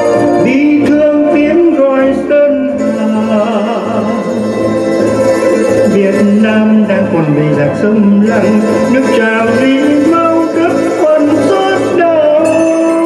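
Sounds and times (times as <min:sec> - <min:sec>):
instrumental accompaniment: 0:00.0 - 0:13.0
man singing: 0:00.0 - 0:13.0.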